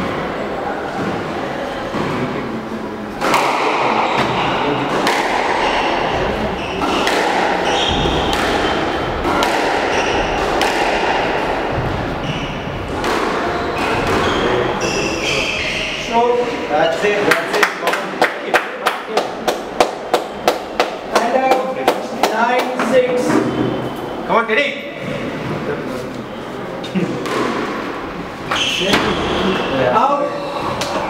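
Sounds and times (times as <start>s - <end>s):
squash ball cracking off rackets and walls: 3.2s - 14.5s, 27.2s - 29.2s.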